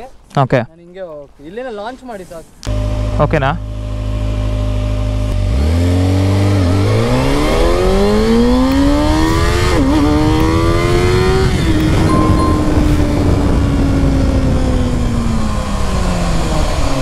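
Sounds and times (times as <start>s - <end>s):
motorcycle engine accelerating: 3.6s - 12.1s.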